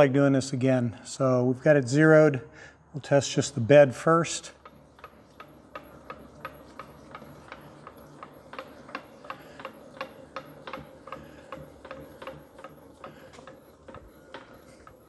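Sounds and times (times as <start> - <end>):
steady clicking: 4.3 - 15.0.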